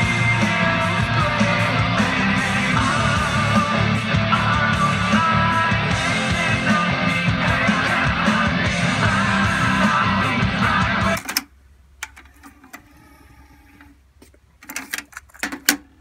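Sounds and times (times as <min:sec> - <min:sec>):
rock music with guitar and singing: 0:00.0 - 0:11.3.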